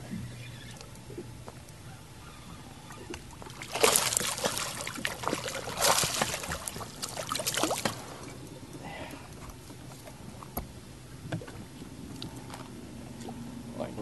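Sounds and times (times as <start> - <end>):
fish splashing at water surface: 3.4 - 8.2.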